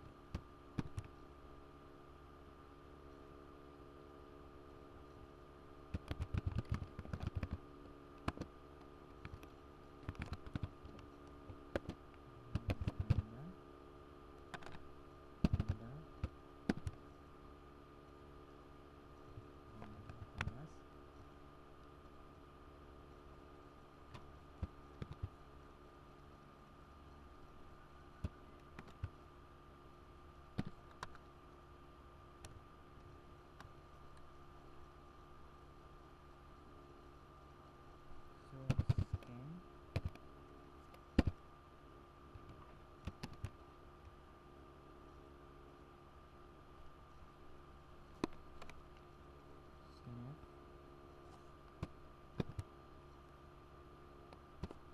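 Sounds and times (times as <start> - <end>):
faint steady hum: 0.0 - 54.9
typing on computer keyboard: 5.9 - 7.6, 10.0 - 10.8.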